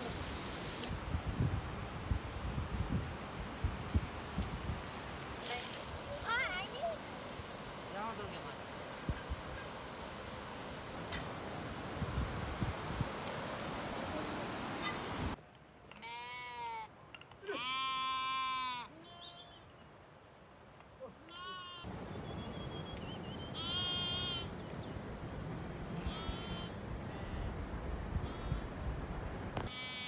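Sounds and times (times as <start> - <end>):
steady rustling hiss: 0.0 - 19.2, 19.8 - 30.0
sheep and goats bleating: 16.0 - 19.6, 21.2 - 21.9, 23.5 - 24.5, 26.0 - 27.5, 28.2 - 28.6, 29.7 - 30.0.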